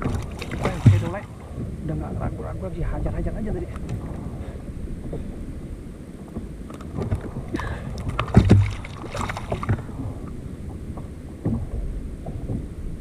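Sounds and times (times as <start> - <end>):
fishing gear knocking on kayak: 0.0 - 2.2, 6.3 - 10.0
wind rumble on microphone: 0.0 - 13.0.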